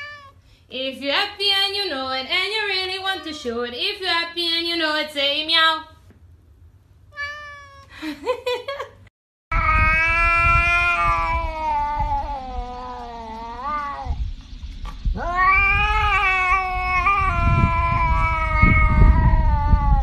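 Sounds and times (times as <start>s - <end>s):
cat meowing: 0.0s - 0.4s, 7.1s - 7.9s, 9.5s - 14.2s, 15.1s - 20.0s.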